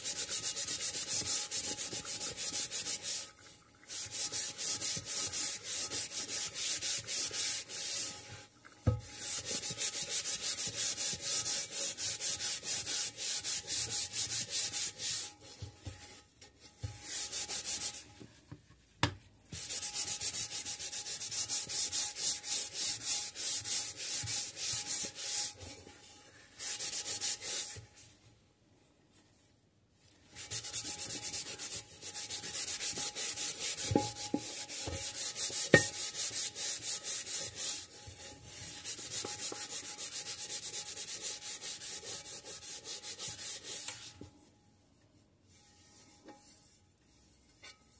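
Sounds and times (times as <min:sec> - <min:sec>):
cloth scrubbing a frying pan: 0:00.0 - 0:28.3, 0:30.0 - 0:44.3, 0:45.5 - 0:47.9.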